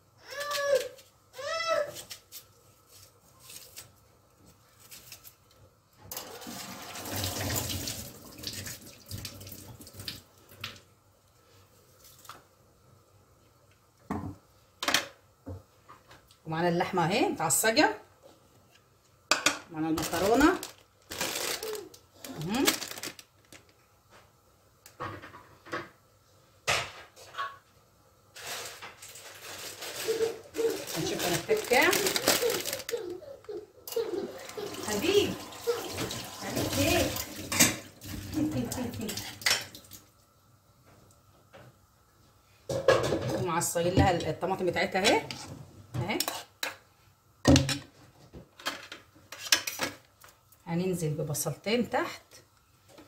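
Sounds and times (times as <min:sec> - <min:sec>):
tap water running into sink: 0:06.1 - 0:10.8, 0:34.4 - 0:40.0
dishes and utensils clattering: 0:33.9 - 0:38.6.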